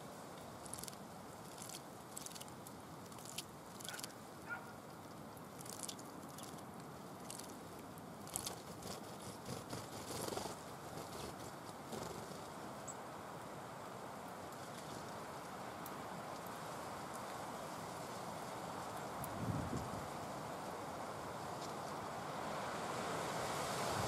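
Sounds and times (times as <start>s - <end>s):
steady background hiss: 0.0s - 24.0s
bird splashing in water: 0.6s - 4.6s, 5.4s - 10.2s.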